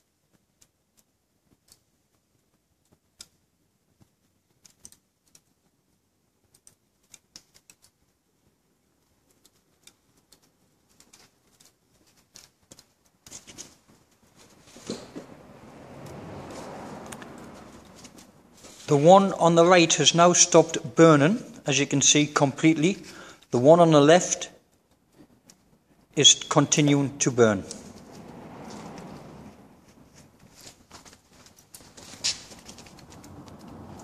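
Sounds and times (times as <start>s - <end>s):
wood fire crackling: 0.0s - 34.0s
fire popping: 27.3s - 34.0s.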